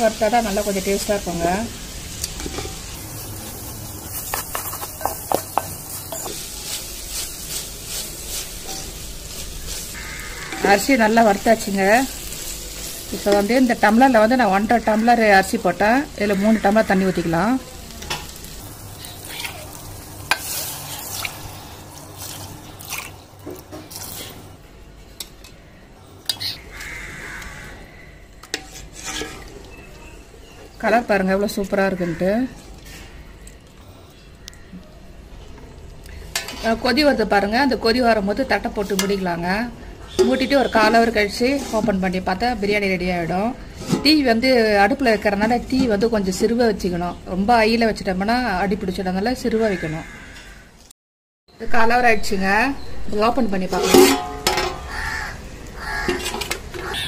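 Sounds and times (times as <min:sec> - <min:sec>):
faint sizzle: 0:00.0 - 0:50.6
wooden spoon stirring wet rice: 0:04.0 - 0:13.5, 0:28.5 - 0:30.0
wooden spatula scraping pot: 0:04.1 - 0:11.7, 0:28.5 - 0:29.9, 0:40.1 - 0:42.0, 0:43.7 - 0:44.2, 0:53.6 - 0:55.0, 0:55.8 - 0:57.0
water pouring and splashing: 0:18.5 - 0:24.5.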